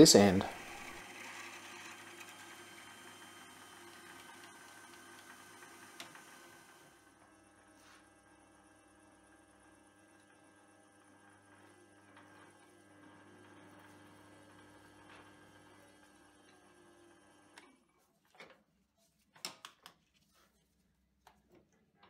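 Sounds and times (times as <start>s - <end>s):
lathe motor humming: 0.0s - 7.4s, 8.4s - 17.6s.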